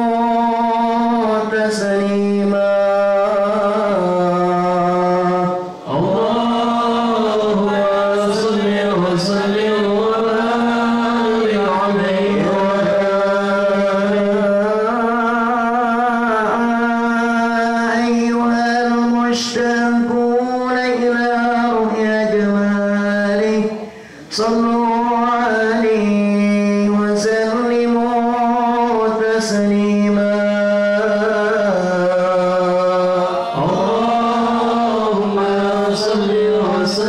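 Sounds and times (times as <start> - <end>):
man chanting into a microphone: 0.0 - 37.0
breath: 23.8 - 24.3.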